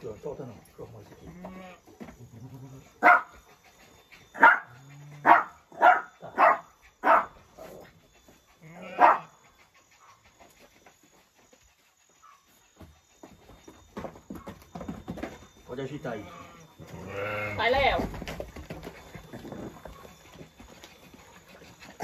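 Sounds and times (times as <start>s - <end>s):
dog barking: 3.0s - 3.3s, 4.4s - 7.4s, 8.9s - 9.3s.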